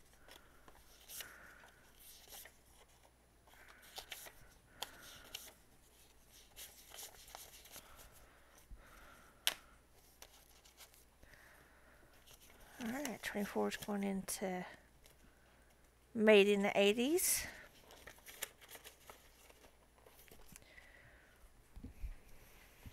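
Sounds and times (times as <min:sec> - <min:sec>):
paper banknotes rustling: 0:00.0 - 0:09.2, 0:10.0 - 0:11.1, 0:12.1 - 0:14.0, 0:17.6 - 0:20.8.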